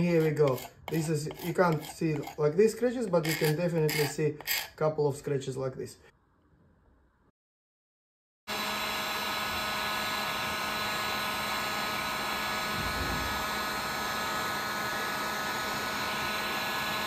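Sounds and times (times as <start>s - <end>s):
heat gun blowing air: 8.5s - 17.0s.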